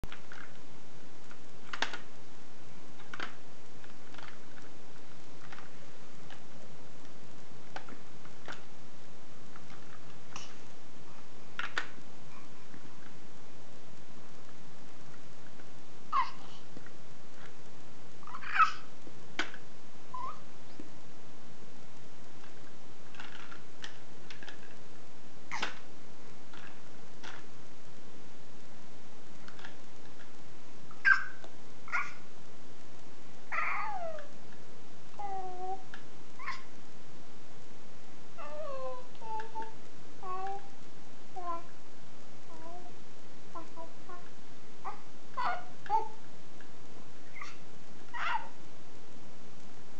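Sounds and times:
steady hiss: 0.1 - 49.9
plastic blocks clicking and tapping: 1.3 - 2.1
baby squealing and cooing: 16.1 - 16.6, 18.2 - 18.9, 20.2 - 20.4, 30.9 - 32.2, 33.5 - 34.3, 36.4 - 36.7, 38.4 - 40.7, 43.6 - 46.2, 47.2 - 48.6.

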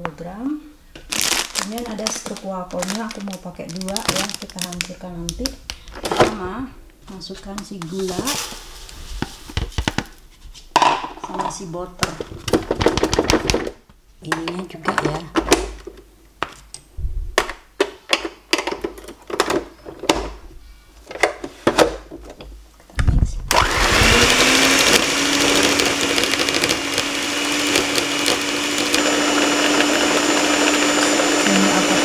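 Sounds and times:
stand mixer motor running: 23.5 - 32.0.

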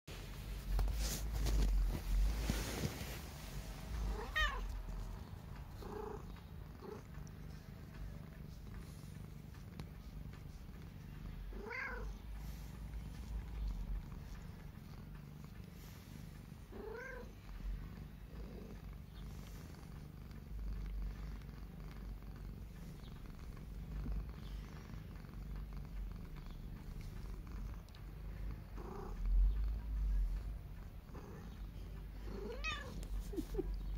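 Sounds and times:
cat purring: 0.1 - 33.9
cat calling: 32.4 - 33.5.

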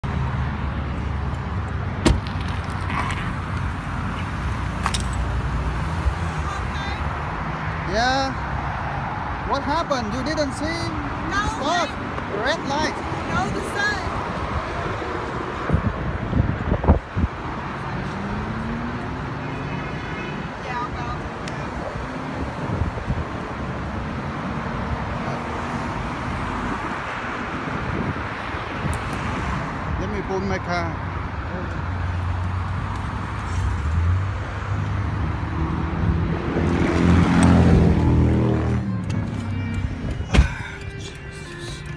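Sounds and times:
road traffic passing: 0.0 - 41.9
wind buffeting microphone: 13.2 - 17.8, 21.1 - 23.6, 26.6 - 29.8.

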